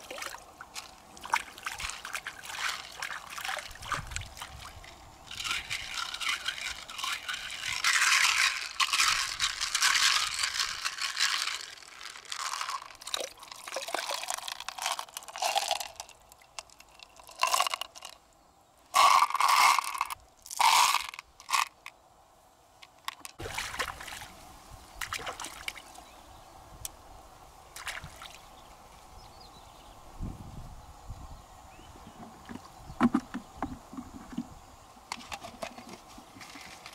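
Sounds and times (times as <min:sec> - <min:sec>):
pearls rattling in a plastic jar: 0:05.3 - 0:18.2, 0:19.0 - 0:21.9.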